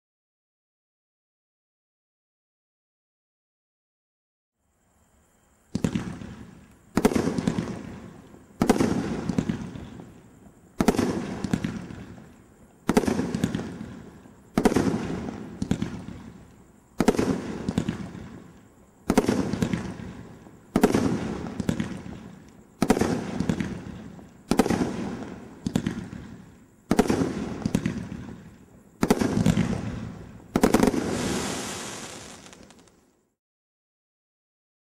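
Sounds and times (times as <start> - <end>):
fireworks sharp reports: 30.6 - 32.9.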